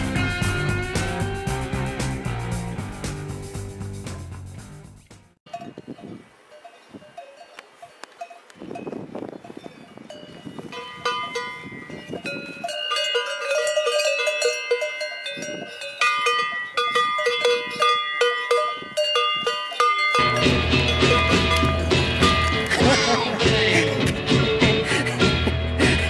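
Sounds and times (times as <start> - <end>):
cowbells clanking: 5.5 - 23.5.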